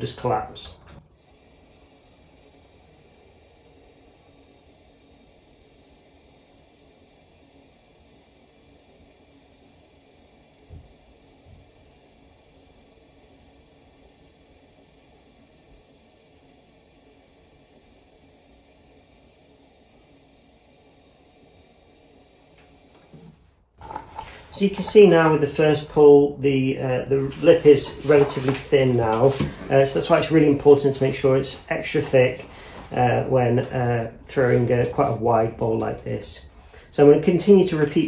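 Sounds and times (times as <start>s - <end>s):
potter's wheel humming and whining: 1.1s - 23.4s.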